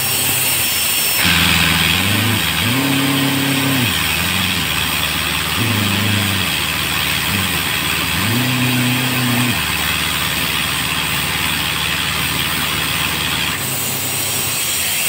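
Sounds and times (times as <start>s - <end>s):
strong hiss: 0.3s - 9.8s
higher running tone: 1.2s - 13.6s.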